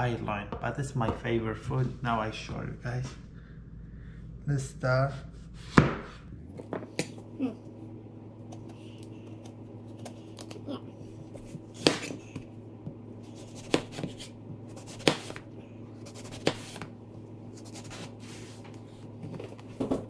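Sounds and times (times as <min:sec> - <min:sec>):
faint hum: 0:00.0 - 0:20.0
knife slicing eggplant: 0:13.2 - 0:15.4, 0:16.0 - 0:16.9, 0:17.6 - 0:18.5.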